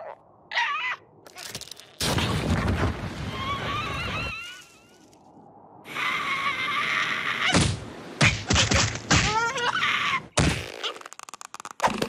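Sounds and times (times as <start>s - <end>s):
cartoon thumps and whacks: 10.4s - 10.8s.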